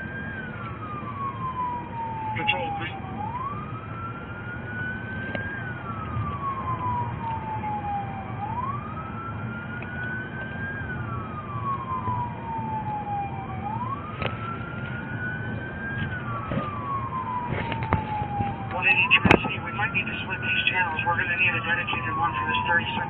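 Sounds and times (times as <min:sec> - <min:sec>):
police siren wailing: 0:00.0 - 0:23.0
vehicle cabin rumble: 0:13.6 - 0:23.0.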